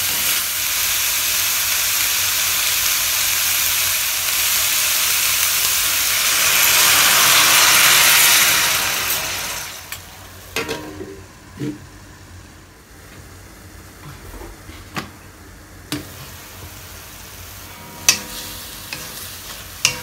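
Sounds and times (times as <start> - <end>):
water sizzling in hot wok: 0.0 - 10.8, 15.9 - 20.0
wok simmering quietly: 0.0 - 20.0.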